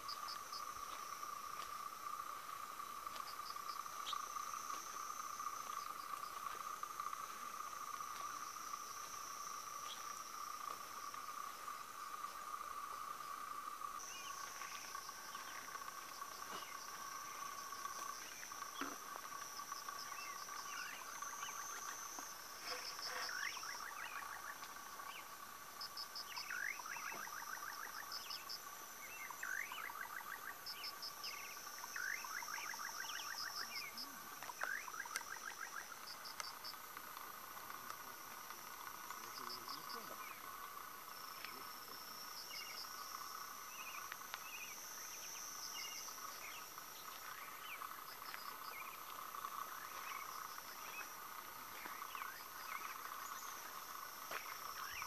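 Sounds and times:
insect chirps: 0.0s - 55.0s
insects trilling: 0.0s - 55.0s
night animals calling: 25.9s - 38.0s.

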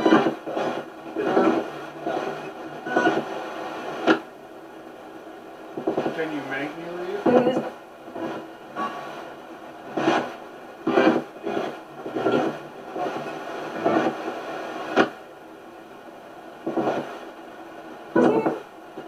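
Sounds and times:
low hiss: 0.0s - 19.0s
choppy bursts of radio static: 5.9s - 9.2s, 9.9s - 15.1s.

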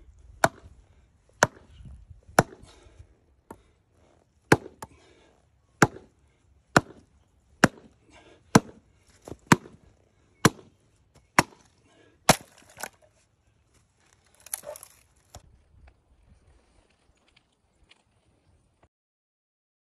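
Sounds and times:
maul chopping into log: 0.4s - 0.7s, 1.4s - 1.7s, 2.3s - 2.6s, 4.5s - 4.9s, 5.8s - 6.1s, 6.7s - 9.8s, 10.4s - 10.7s, 11.3s - 11.7s, 12.3s - 13.0s
log splitting with crackle: 11.4s - 15.5s.

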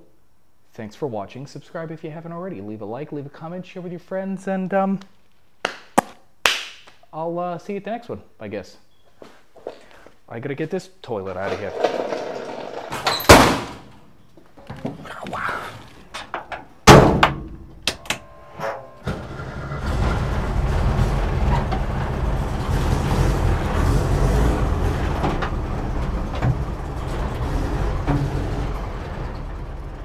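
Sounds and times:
van door shutting: 16.2s - 30.0s
engine starting and running: 17.6s - 30.0s.

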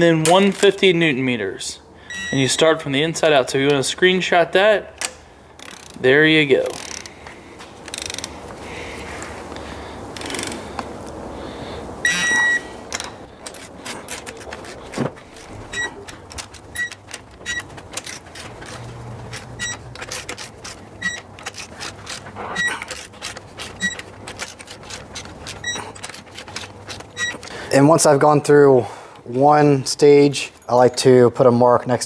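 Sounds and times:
short high beeps: 2.1s - 2.5s, 12.0s - 12.7s
ratcheting torque wrench clicking: 5.6s - 7.2s, 7.8s - 8.4s, 10.1s - 10.6s, 12.9s - 27.6s.

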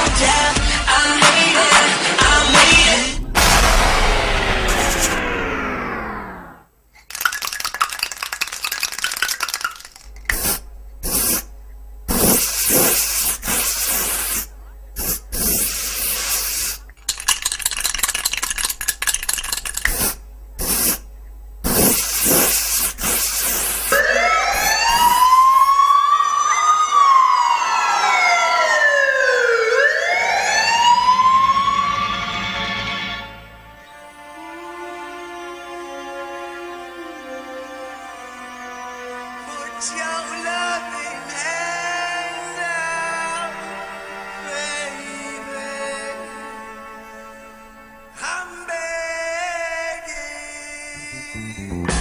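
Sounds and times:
harsh static-like noise bursts: 1.1s - 5.6s, 7.2s - 25.7s
swooping siren-like tones: 3.2s - 6.7s, 23.9s - 32.9s.

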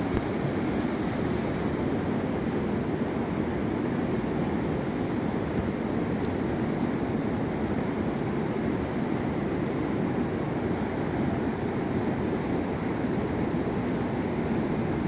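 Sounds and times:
river rushing through rapids: 0.0s - 15.0s.

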